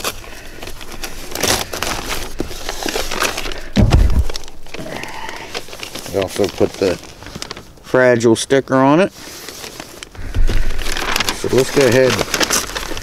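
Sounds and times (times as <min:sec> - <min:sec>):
cardboard and paper rustling: 0:00.0 - 0:13.0
package thumping down: 0:03.7 - 0:04.8.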